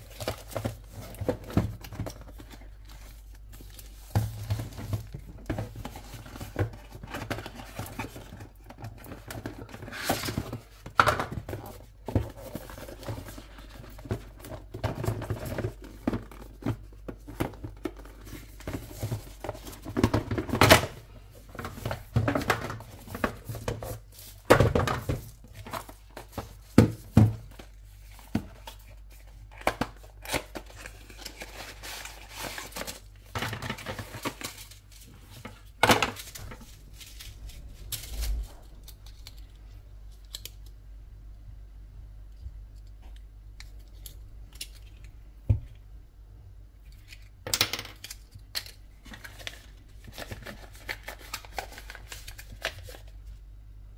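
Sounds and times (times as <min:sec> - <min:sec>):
plastic and paper crinkling: 0:00.0 - 0:39.6, 0:48.7 - 0:53.4
box handling clicks and knocks: 0:04.1 - 0:28.8.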